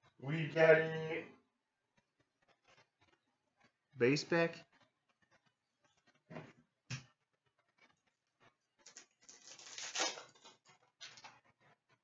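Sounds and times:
papery card rustle: 8.8s - 11.4s.

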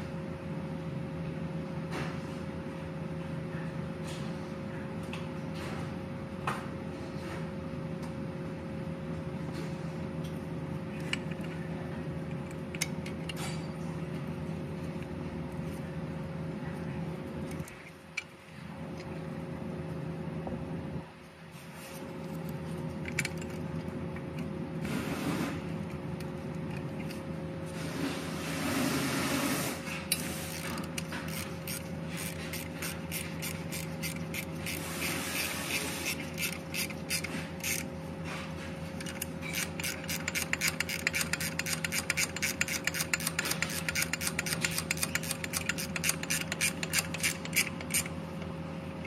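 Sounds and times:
ratchet wrench clicking: 30.1s - 37.9s, 39.0s - 48.2s.

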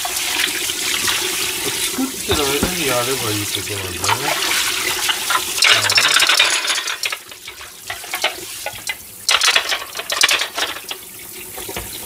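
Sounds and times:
tap water splashing over dishes: 0.0s - 12.0s
dishes clinking: 1.6s - 3.3s, 5.0s - 11.0s.

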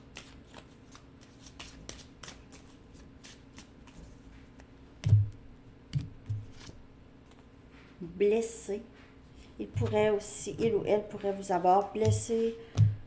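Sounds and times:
cards being shuffled: 0.1s - 4.7s, 6.0s - 6.8s.

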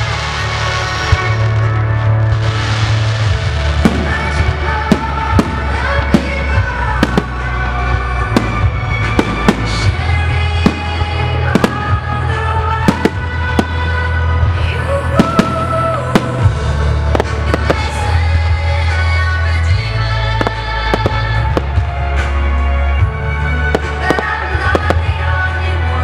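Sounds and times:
firework bangs: 0.0s - 19.2s, 20.3s - 22.4s, 23.6s - 25.4s
loud music with heavy bass: 0.0s - 26.0s.

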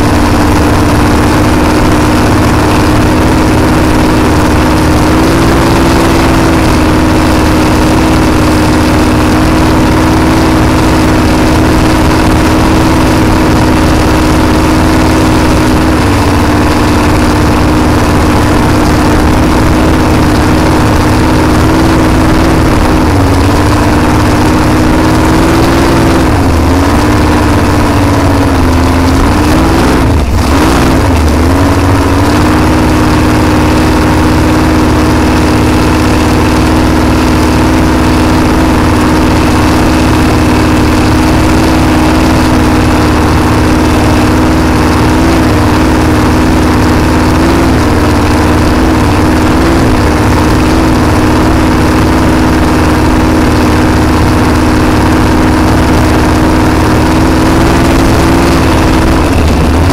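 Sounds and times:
boat engine running: 0.0s - 59.9s.

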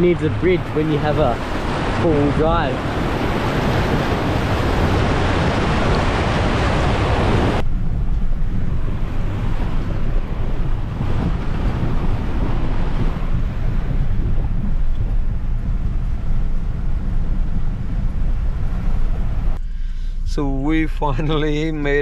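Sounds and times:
water rushing and splashing: 0.0s - 19.6s
wind on microphone: 0.0s - 22.0s
vehicle engine: 6.8s - 21.7s.

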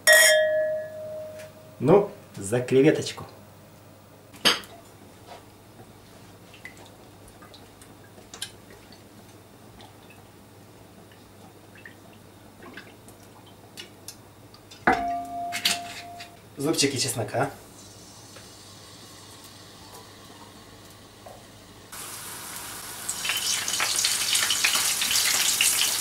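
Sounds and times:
glass clink with ring: 0.0s - 1.7s, 14.9s - 16.4s.

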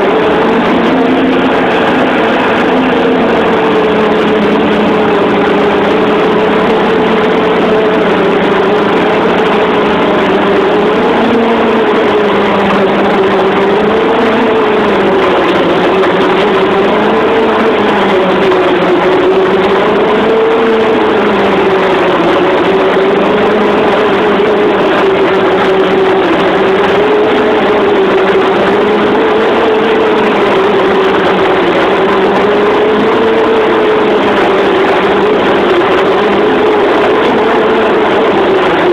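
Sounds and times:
boat engine droning: 0.0s - 38.9s.

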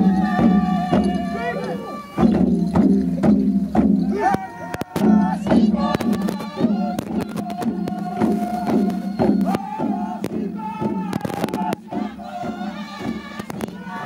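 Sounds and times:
group chanting and singing: 0.0s - 14.0s
wooden hand drums beating: 0.0s - 14.0s
group shouting: 4.0s - 5.9s, 9.5s - 11.9s.

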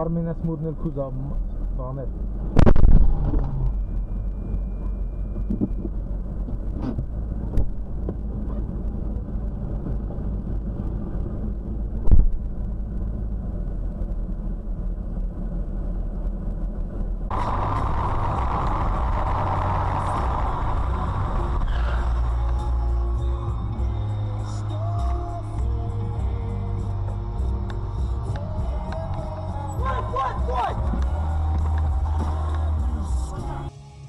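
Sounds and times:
low vehicle rumble: 0.0s - 34.0s
bright steady noise: 17.3s - 24.4s.

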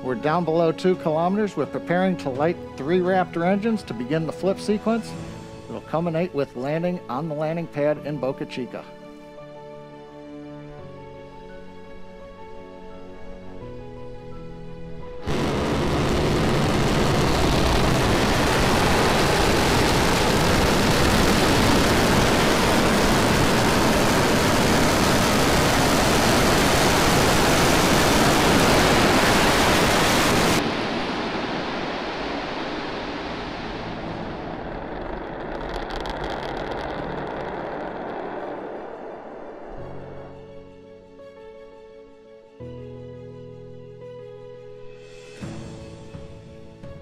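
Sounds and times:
rocket engines roaring: 15.2s - 40.8s
quieter rumble: 15.2s - 41.0s.

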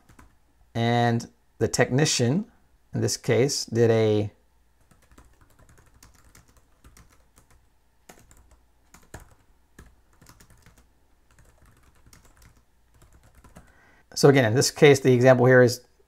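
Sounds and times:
typing on computer keyboard: 0.1s - 0.3s, 4.8s - 13.7s.

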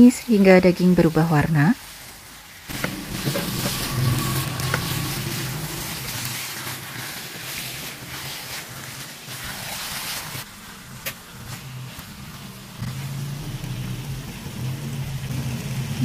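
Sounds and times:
meat sizzling in frying pan: 0.0s - 16.0s.

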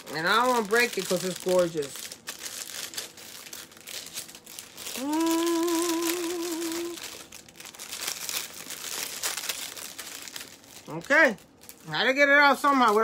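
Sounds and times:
plastic packaging crinkling: 0.0s - 13.0s
person humming: 4.9s - 7.2s.

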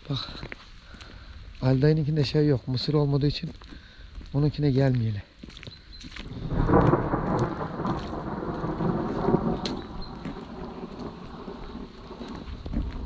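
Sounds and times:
rain falling: 6.2s - 13.0s
raindrops ticking close by: 6.2s - 13.0s
thunder rumbling: 6.3s - 13.0s.

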